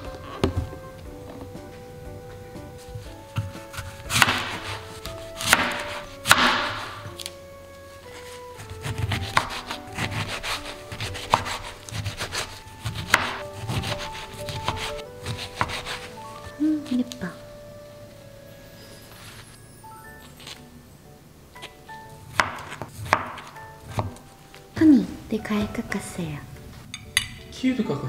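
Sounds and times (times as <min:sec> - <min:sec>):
utensil scraping: 0:00.0 - 0:17.4
light background music: 0:00.0 - 0:28.0.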